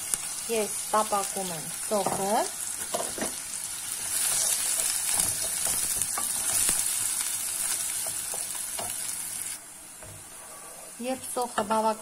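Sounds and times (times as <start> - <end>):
onion sizzling in oil: 0.0 - 12.0
wooden spoon stirring in pan: 4.0 - 11.9.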